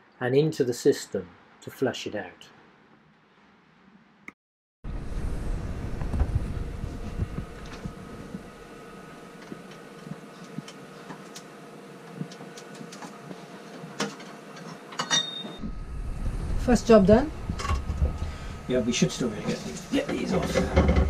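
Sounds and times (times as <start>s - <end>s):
faint hum: 4.9s - 21.0s.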